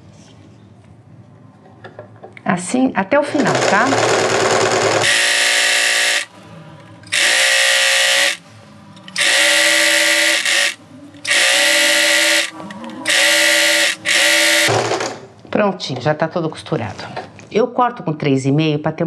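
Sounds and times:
electric sewing machine stitching: 3.4s - 6.3s, 7.1s - 8.4s, 9.2s - 15.2s.

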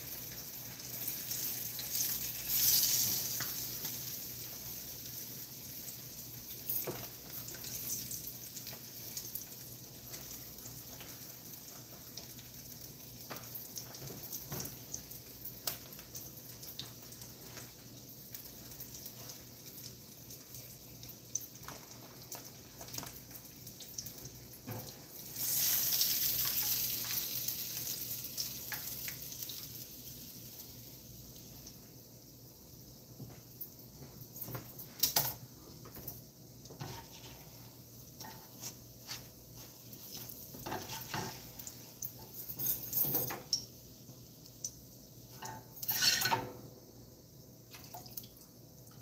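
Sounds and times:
oil popping and crackling: 0.0s - 31.8s
fish frying in hot oil: 0.0s - 49.0s.

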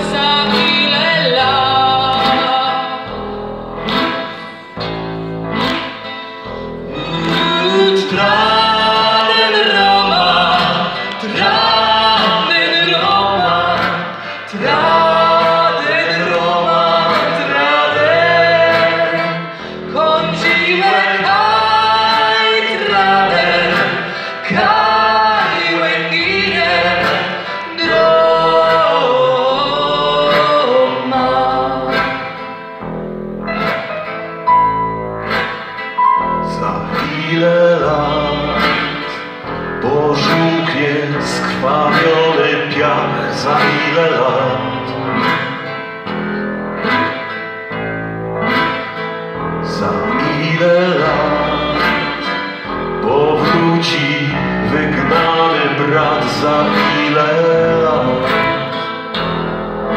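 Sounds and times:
woman singing: 0.0s - 3.1s, 6.9s - 27.2s, 27.8s - 32.2s
piano and keyboards: 0.0s - 59.9s.

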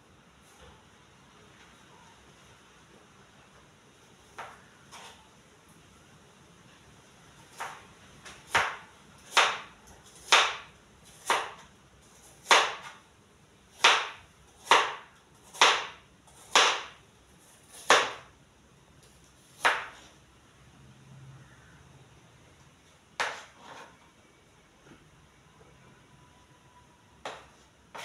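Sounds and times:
knife chopping on cutting board: 7.5s - 11.6s, 12.4s - 13.0s, 13.8s - 17.0s, 17.6s - 18.3s, 19.6s - 20.1s, 23.2s - 23.9s, 27.2s - 28.0s.

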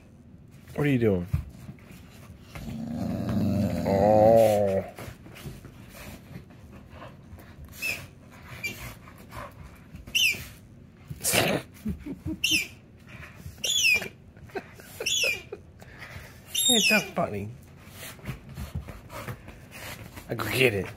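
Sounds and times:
dog grumbling: 2.5s - 5.0s, 11.2s - 11.8s
squeaky toy squeaks: 13.6s - 14.1s, 15.0s - 15.5s, 16.5s - 17.2s.

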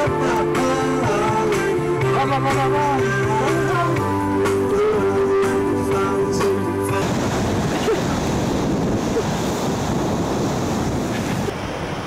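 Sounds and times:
ocean surf washing: 0.0s - 12.0s
wind on microphone: 1.1s - 12.0s.

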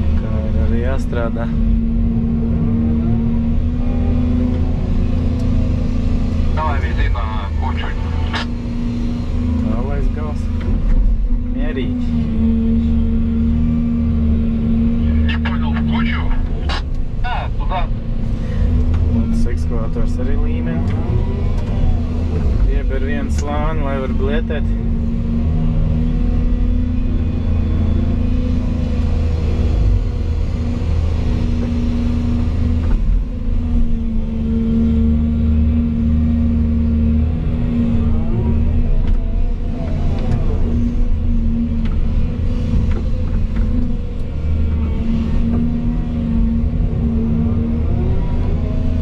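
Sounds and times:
excavator diesel engine running: 0.0s - 49.0s.

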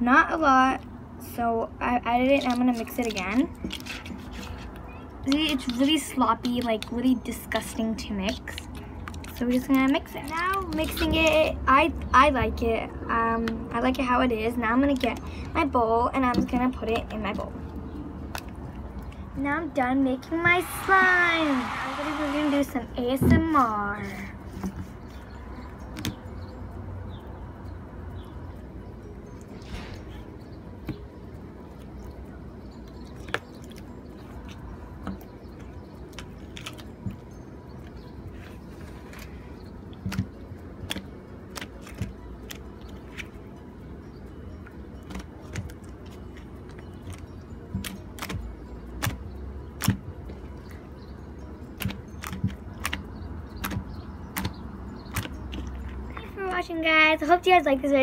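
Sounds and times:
fingers poking slime: 47.8s - 49.2s, 51.8s - 55.7s.

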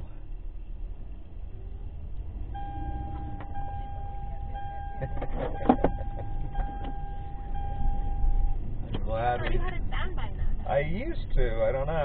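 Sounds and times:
car road and engine rumble: 0.0s - 12.0s
steady high tone: 2.6s - 8.7s.

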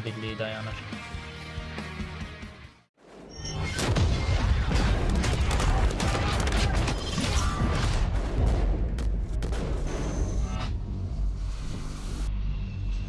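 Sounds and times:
music: 0.0s - 2.9s, 9.5s - 13.0s
explosions: 3.7s - 10.5s
gunfire shots: 3.8s - 9.9s.

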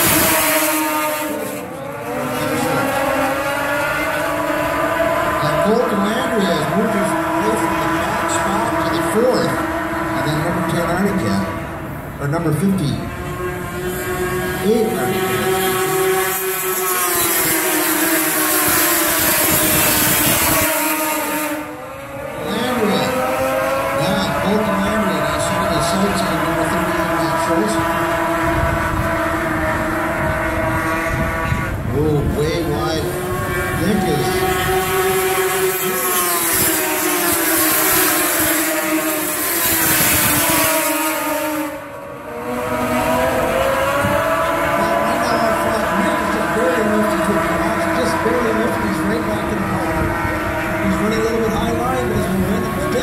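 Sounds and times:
snowmobile engine high revs: 0.0s - 53.0s.

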